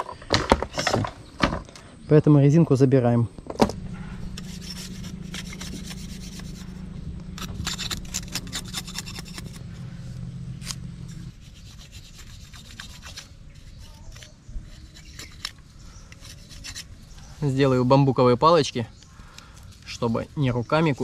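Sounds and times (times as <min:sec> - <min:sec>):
steady low hum: 0:01.1 - 0:18.2
knife scraping bamboo: 0:04.2 - 0:17.4.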